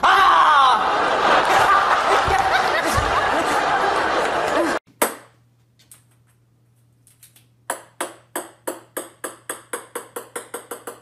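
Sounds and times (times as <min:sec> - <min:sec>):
ball bouncing on wooden floor: 0:07.7 - 0:11.0.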